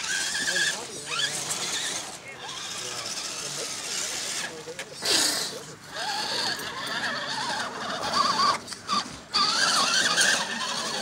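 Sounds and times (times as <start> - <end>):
electric motor whining: 5.9 - 11.0.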